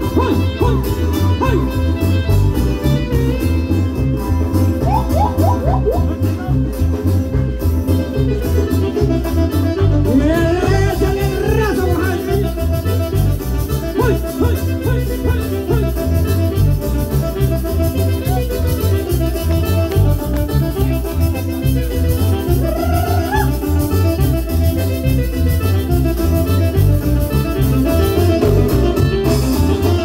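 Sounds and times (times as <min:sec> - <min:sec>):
latin dance music with bass beat: 0:00.0 - 0:30.0
person singing: 0:10.0 - 0:12.6.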